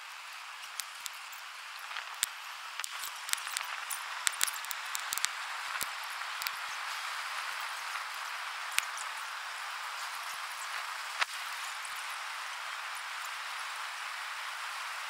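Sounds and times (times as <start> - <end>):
bonfire flames hissing: 0.0 - 15.0
wood crackling and popping: 0.6 - 9.2.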